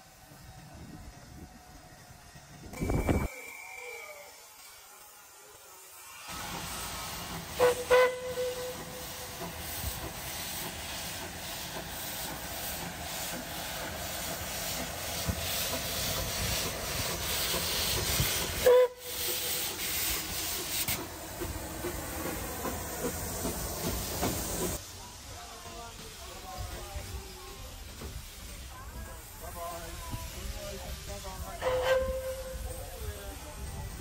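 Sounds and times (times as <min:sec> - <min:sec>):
steam train hiss and rumble: 0:00.0 - 0:34.0
steam locomotive whistle blasts: 0:02.7 - 0:05.0, 0:06.7 - 0:09.2, 0:18.6 - 0:19.8, 0:31.6 - 0:32.8.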